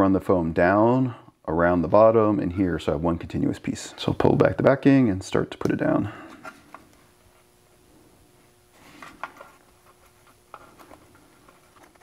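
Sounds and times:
tape backing rustle: 0:08.8 - 0:12.0.

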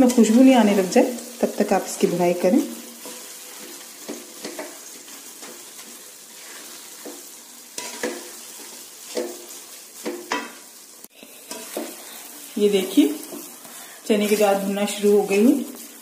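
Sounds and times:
paste sizzling in a pan: 0:00.0 - 0:16.0
spatula scraping a metal pan: 0:03.0 - 0:10.6, 0:11.3 - 0:12.3.

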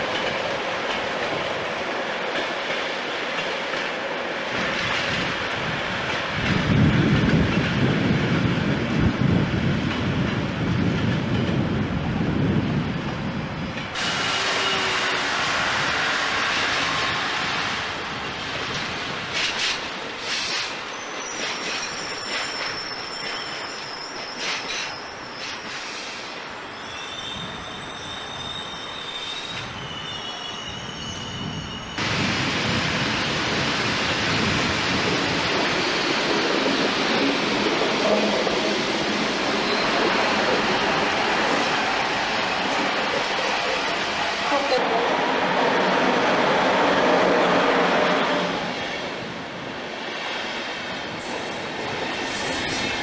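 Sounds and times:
train wheels hissing on rail: 0:13.9 - 0:44.8, 0:50.0 - 0:53.0
thin squealing tones: 0:20.9 - 0:32.0.

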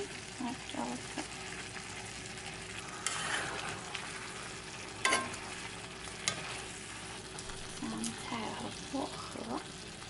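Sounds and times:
stew sizzling in a pan: 0:00.0 - 0:10.0
metal spatula stirring: 0:03.0 - 0:04.1, 0:05.0 - 0:06.8
spatula clinking on pan: 0:05.0 - 0:05.4.

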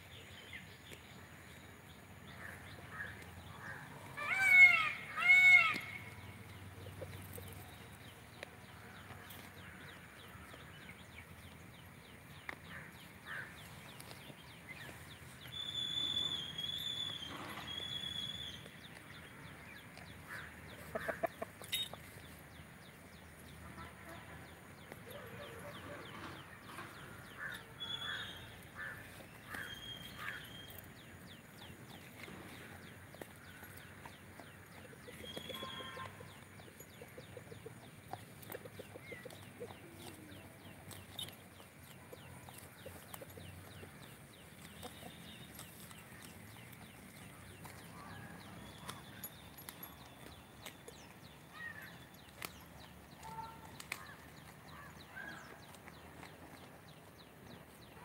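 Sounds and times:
hen calling: 0:03.6 - 0:06.2
bird calls: 0:12.4 - 0:22.4, 0:24.8 - 0:58.0
high whistled bird call: 0:15.5 - 0:18.6.

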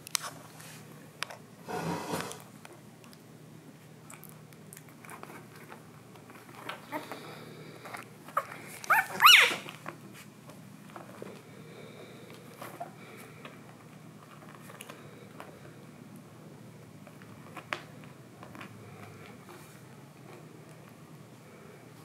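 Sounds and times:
puppy squealing: 0:08.4 - 0:09.7.

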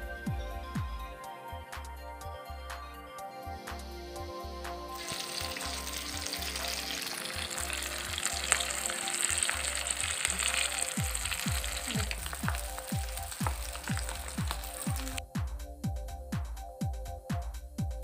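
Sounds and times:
music with pulsing bass beat: 0:00.0 - 0:18.0
fish sizzling in hot oil: 0:05.0 - 0:15.2.

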